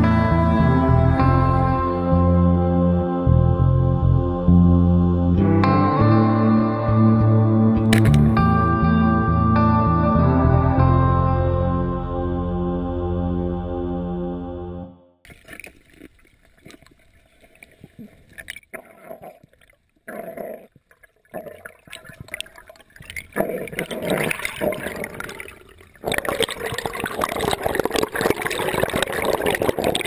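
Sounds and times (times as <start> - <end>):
background music: 0.0 - 15.1
underwater clicks: 7.8 - 8.5, 15.3 - 30.0
underwater bubbling and gurgling: 15.3 - 30.0.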